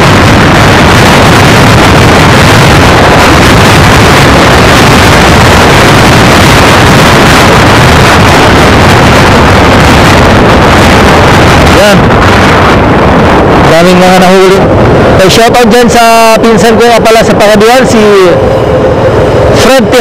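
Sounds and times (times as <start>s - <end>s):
motorcycle engine: 0.0s - 13.7s
road noise: 0.0s - 20.0s
wind buffeting microphone: 0.0s - 20.0s.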